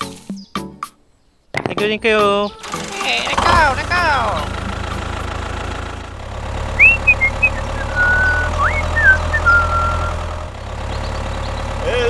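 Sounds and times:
tractor engine rumbling: 0:01.6 - 0:12.0
high whistled chirps: 0:06.8 - 0:10.2.

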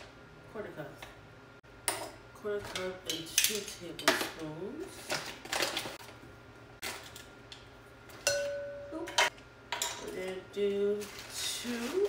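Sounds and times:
kitchen utensils clinking: 0:08.2 - 0:10.4.

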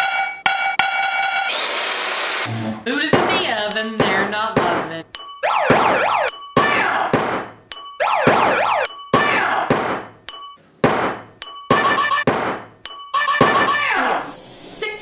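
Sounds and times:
swooping siren-like tone: 0:05.4 - 0:06.4, 0:08.0 - 0:09.0.

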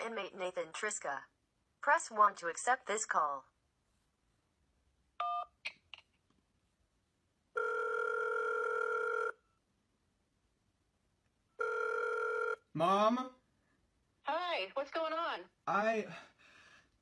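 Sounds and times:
phone ringback tone: 0:07.6 - 0:09.4, 0:11.6 - 0:12.6.

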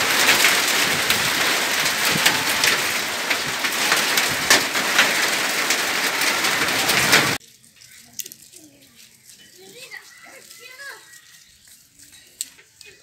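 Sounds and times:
hailstones clicking: 0:00.0 - 0:07.4
rain hissing: 0:00.0 - 0:07.5.

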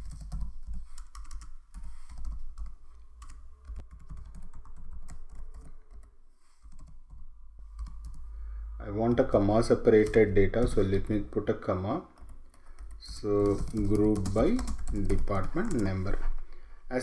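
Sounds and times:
low background hum: 0:06.7 - 0:17.0.

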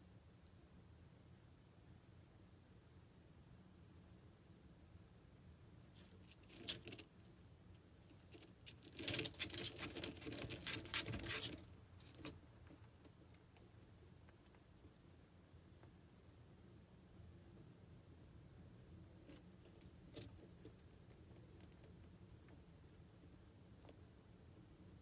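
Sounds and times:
lizard crunching leafy greens: 0:08.3 - 0:15.4, 0:19.2 - 0:22.6.

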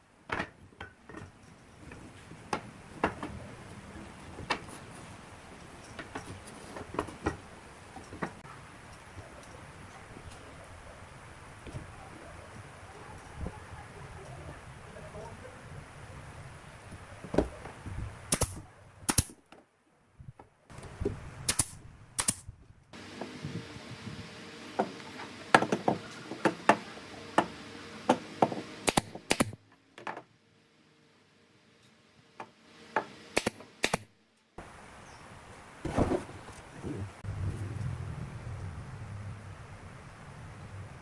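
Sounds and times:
pneumatic nailer firing: 0:18.3 - 0:19.4, 0:21.5 - 0:22.4, 0:24.8 - 0:29.6, 0:32.9 - 0:34.1.

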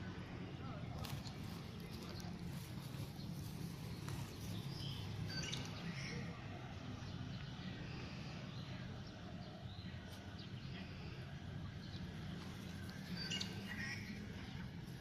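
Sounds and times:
faint birds chirping: 0:00.0 - 0:15.0.

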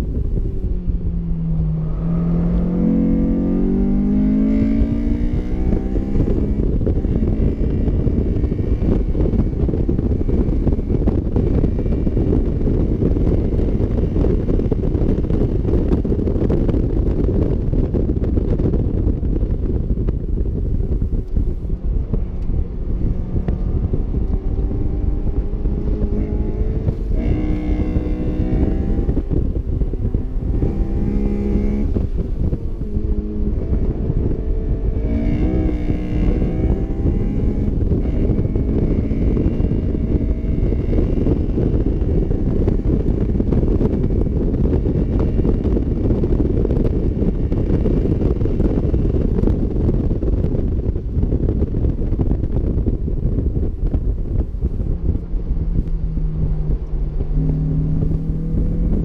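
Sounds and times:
wind buffeting microphone: 0:00.0 - 0:59.0
car engine revving hard: 0:01.6 - 0:09.4, 0:22.3 - 0:47.5, 0:55.0 - 0:59.0.

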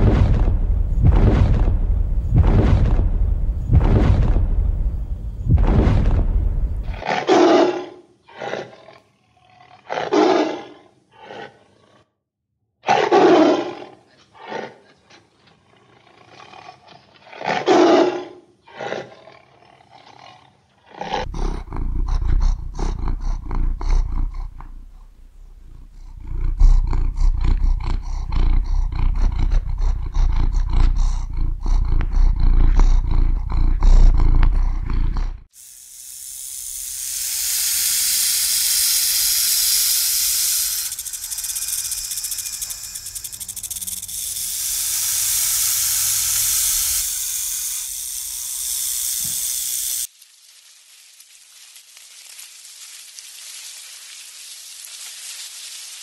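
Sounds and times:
big cat growling and roaring: 0:05.5 - 0:12.1, 0:12.9 - 0:35.5
snake hissing: 0:21.1 - 0:34.7, 0:35.5 - 0:50.1.

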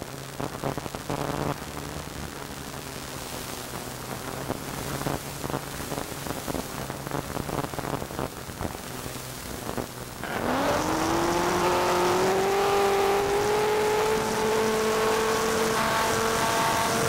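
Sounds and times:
crackling static hiss: 0:00.0 - 0:17.0
engine drone: 0:00.0 - 0:17.0
low hum: 0:09.6 - 0:17.0.

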